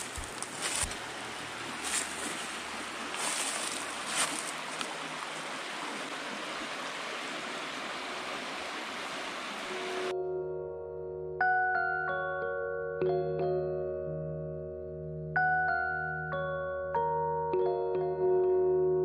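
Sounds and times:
creek water rushing: 0.0 - 10.1.

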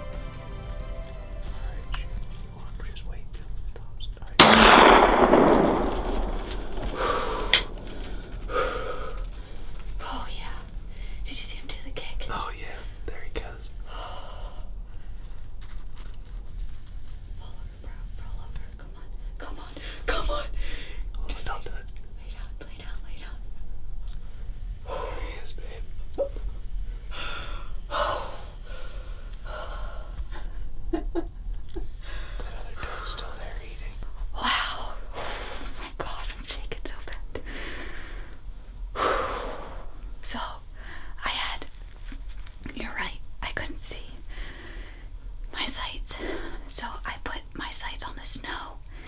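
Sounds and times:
shotgun blast: 4.4 - 8.4
person breathing hard: 6.9 - 10.0, 13.9 - 15.4, 20.6 - 21.1, 27.0 - 30.7, 31.8 - 33.3, 37.4 - 41.2, 44.3 - 45.2.

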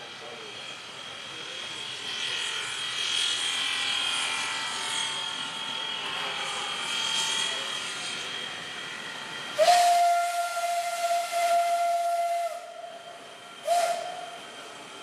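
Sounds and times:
steady high squeal: 0.0 - 15.0
steam train running past: 0.0 - 15.0
steam whistle blowing: 9.5 - 14.6.

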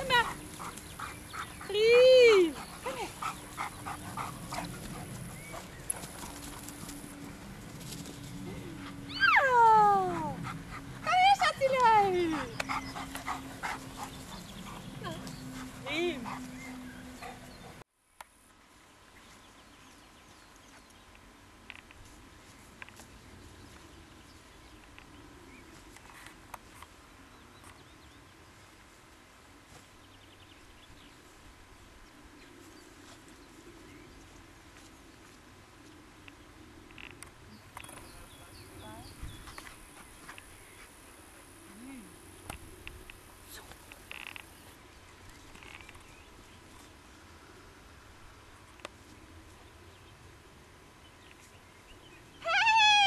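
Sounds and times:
dog running on grass: 0.0 - 9.3.

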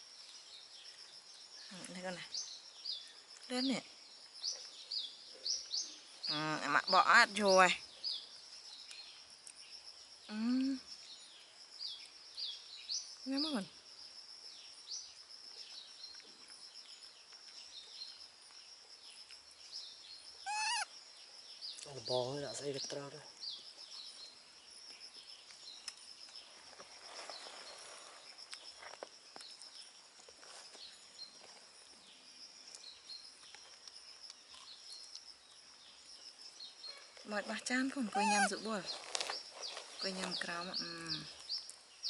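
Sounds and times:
high pulsing insect trill: 0.0 - 42.0
bird chirps: 19.1 - 26.6, 32.1 - 42.0
falling bird chirps: 19.3 - 22.0, 36.8 - 42.0.

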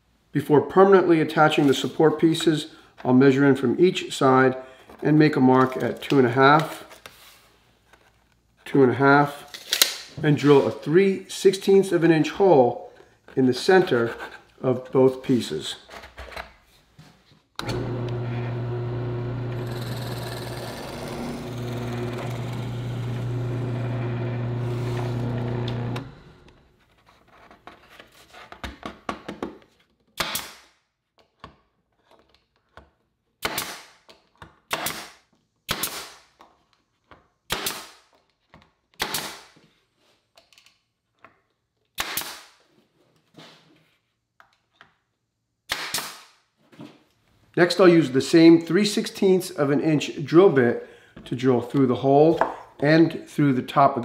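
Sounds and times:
drill boring into wood: 17.6 - 26.6
nail gun firing: 30.2 - 30.7, 33.4 - 34.0, 34.7 - 36.2, 37.5 - 38.0, 39.0 - 39.5, 42.0 - 42.6, 45.7 - 46.3.

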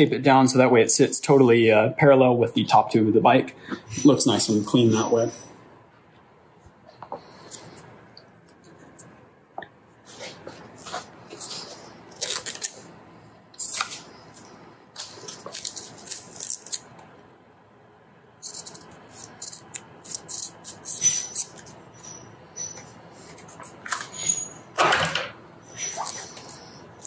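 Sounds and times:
tape rustling: 10.2 - 12.9, 13.6 - 17.0
short high squeaks: 20.3 - 23.0, 24.0 - 24.8, 25.7 - 26.8.

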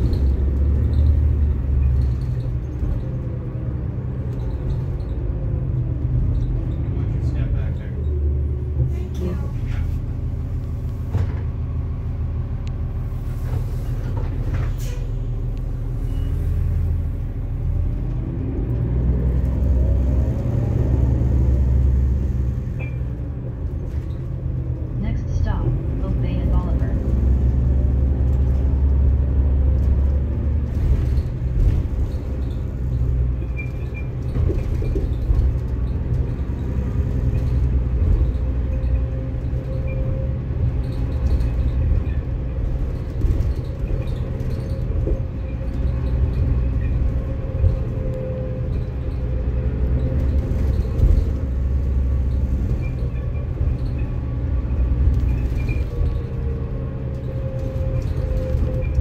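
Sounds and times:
bus low rumble: 0.0 - 59.0.

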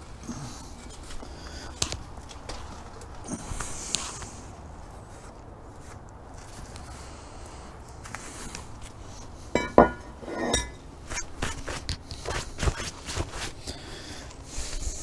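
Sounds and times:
metal brake rotor clanking: 9.6 - 10.8
knocks and scrapes of handling: 9.6 - 13.6.

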